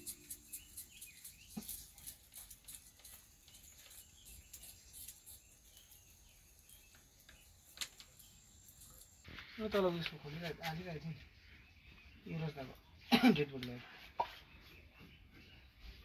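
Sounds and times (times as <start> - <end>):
quick high chirps and ticks: 0.0 - 9.2.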